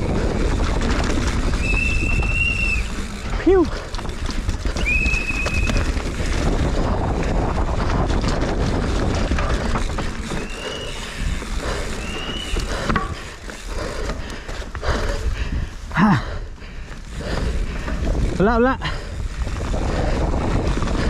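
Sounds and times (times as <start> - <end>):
bike clattering over bumps: 0.0 - 21.0
wind rushing over microphone: 0.0 - 21.0
disc brakes squealing: 1.5 - 3.1, 4.7 - 6.0, 10.3 - 11.2, 11.9 - 12.7.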